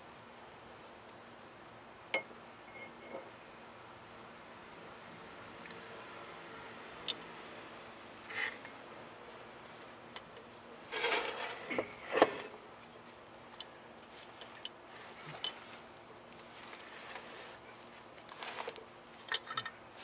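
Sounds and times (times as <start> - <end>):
metal tools clinking: 8.3 - 8.8, 10.9 - 12.5, 19.2 - 19.8.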